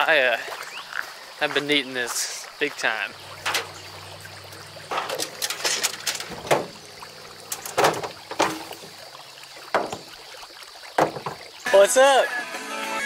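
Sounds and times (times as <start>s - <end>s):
low steady hum: 3.1s - 10.1s
feet landing on truck bed: 11.0s - 11.5s.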